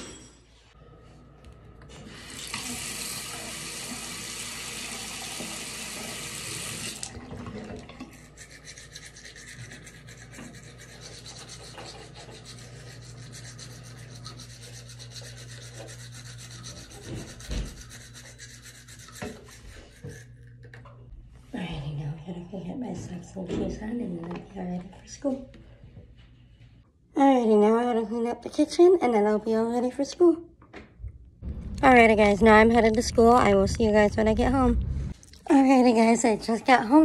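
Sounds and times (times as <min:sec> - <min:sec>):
toothbrush scrubbing teeth: 0:08.0 - 0:20.8.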